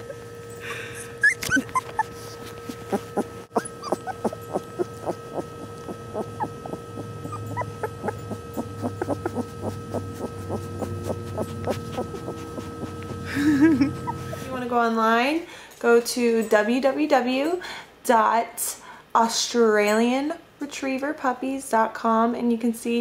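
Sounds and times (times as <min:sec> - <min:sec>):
faint steady hum: 0:00.0 - 0:23.0
puppies squeaking and whimpering: 0:01.0 - 0:14.6.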